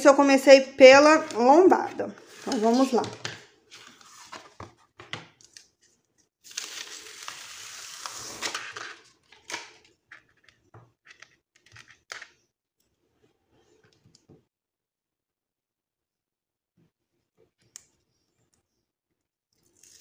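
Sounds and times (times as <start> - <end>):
paper and plastic rustling: 1.0 - 5.9, 6.5 - 10.4.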